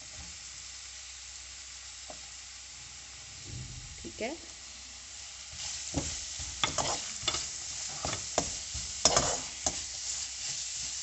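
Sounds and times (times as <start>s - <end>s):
onions sizzling in hot oil: 0.0s - 11.0s
spatula scraping a pan: 5.5s - 11.0s.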